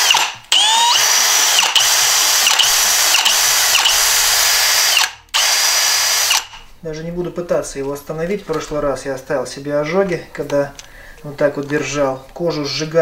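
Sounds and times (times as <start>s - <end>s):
cordless drill motor whine: 0.0s - 6.6s.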